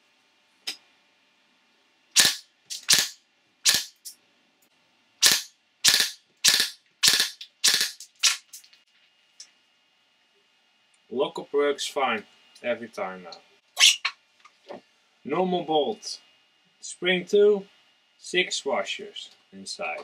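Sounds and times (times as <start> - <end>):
airsoft gun shots: 2.2 - 4.0, 5.2 - 8.5.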